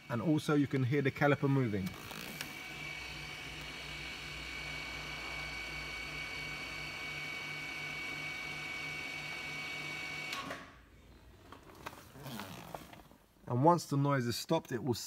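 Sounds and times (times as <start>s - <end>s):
electric brake motor whining: 0.0s - 10.7s.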